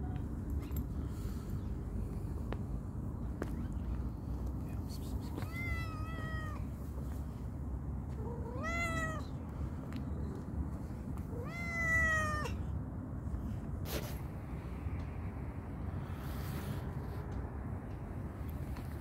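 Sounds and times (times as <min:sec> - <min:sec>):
cat meowing: 0:05.4 - 0:06.7, 0:08.2 - 0:09.3, 0:11.3 - 0:12.6.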